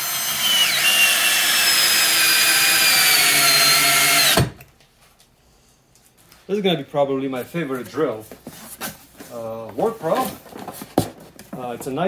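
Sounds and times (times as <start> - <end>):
drill bit cutting wood: 0.0 - 4.6
drill motor whine: 0.0 - 4.6.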